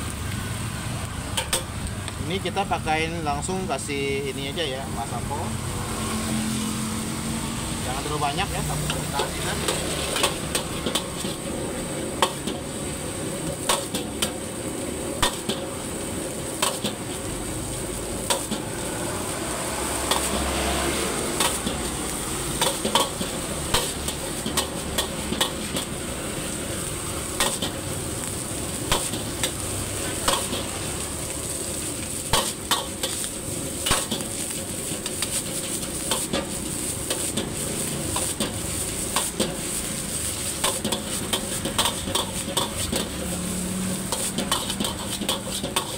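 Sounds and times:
rice sizzling in a wok: 0.0s - 45.9s
metal spatula scraping a wok: 8.8s - 17.2s, 18.2s - 27.9s, 28.7s - 45.9s.

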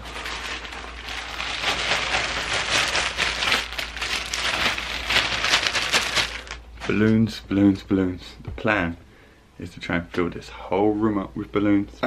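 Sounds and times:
plastic bag rustling: 0.0s - 7.1s.

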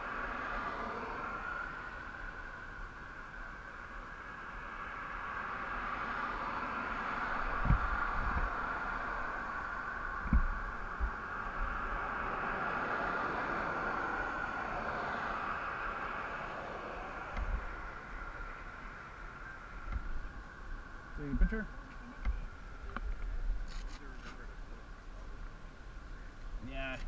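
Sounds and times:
highway traffic rushing past: 0.0s - 27.0s
dull low thumps: 7.6s - 8.5s, 10.2s - 11.2s.

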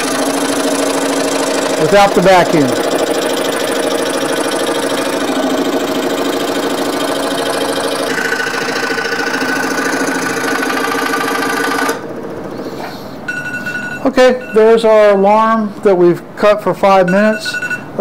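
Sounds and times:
scroll saw buzzing through wood: 0.0s - 12.1s.

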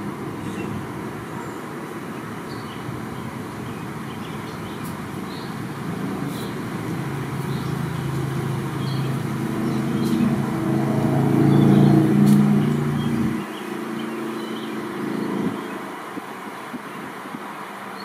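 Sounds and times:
vehicle engine passing: 4.9s - 17.9s.

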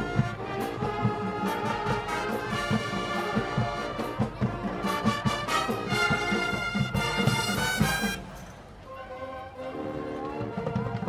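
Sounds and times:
drum hits: 0.0s - 8.3s
brass sustaining chords: 0.0s - 10.6s.

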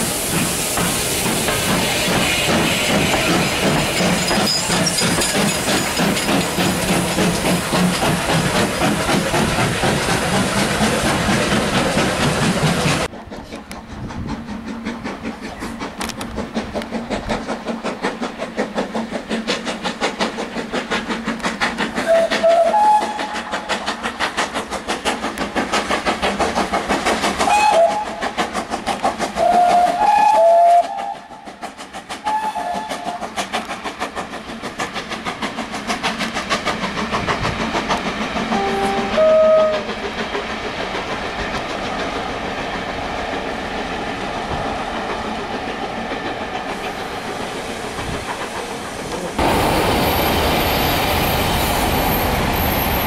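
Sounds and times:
steam locomotive passing: 0.0s - 53.0s.

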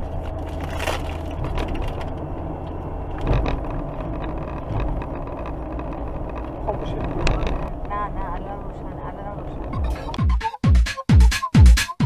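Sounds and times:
engine and road hum: 0.0s - 10.4s
small clicks and rattles: 0.4s - 8.1s.

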